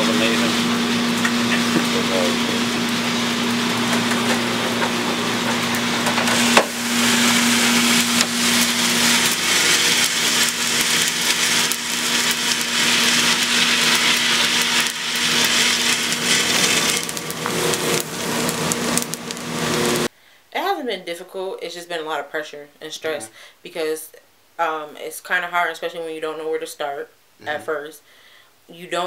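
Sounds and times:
machine hum: 0.0 - 20.1
coffee beans rattling and crackling: 3.7 - 20.1.

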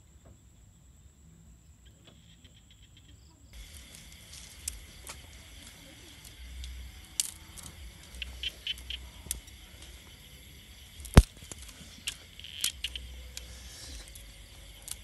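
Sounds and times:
twigs crackling: 3.6 - 15.0
stick snapping: 4.4 - 10.2, 11.0 - 15.0.

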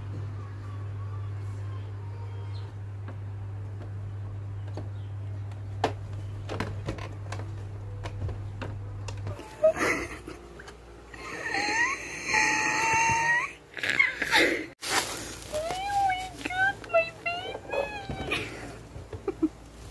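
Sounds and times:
steady low machine hum: 0.0 - 19.9
high voice: 15.5 - 18.8.

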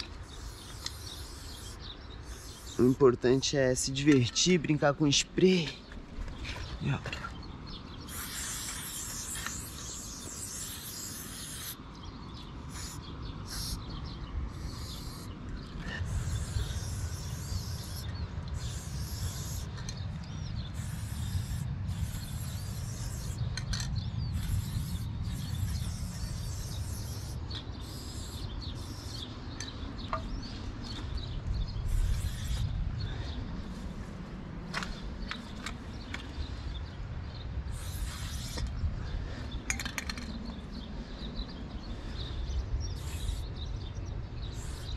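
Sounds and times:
spray paint can hissing: 0.0 - 3.0, 8.1 - 11.8, 12.7 - 13.9, 14.5 - 15.4, 16.1 - 29.3, 31.9 - 32.7, 37.7 - 38.7, 43.0 - 43.5, 44.6 - 44.9.

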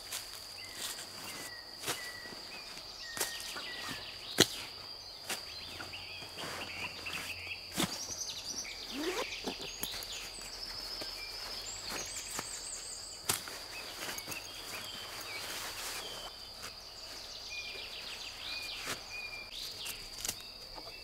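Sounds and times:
crickets chirping: 0.0 - 21.0
hammock fabric rustling: 4.7 - 20.3
bird calling: 5.6 - 13.2.

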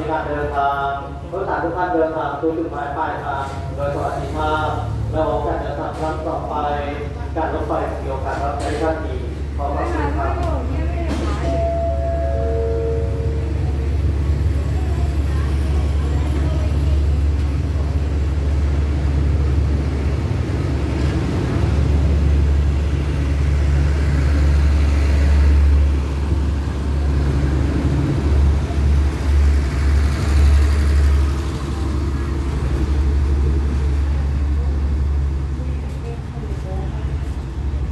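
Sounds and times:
train wheels rumbling on rails: 3.2 - 37.9.

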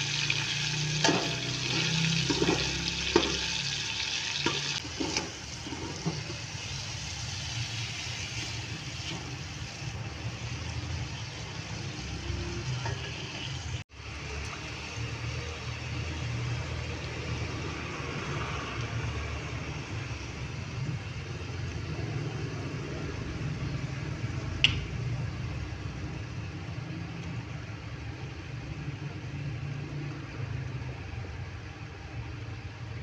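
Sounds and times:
chicken sizzling in oil: 0.0 - 21.6.

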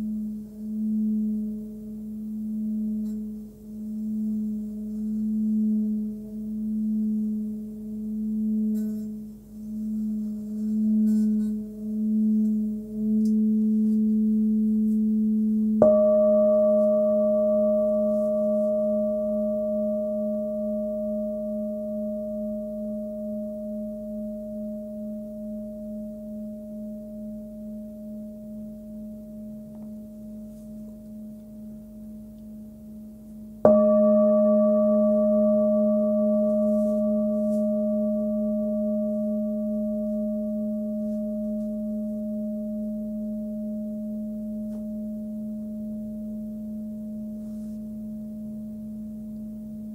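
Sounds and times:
singing bowl humming: 0.0 - 49.9
singing bowl struck ringing: 10.5 - 32.6, 33.6 - 49.9.

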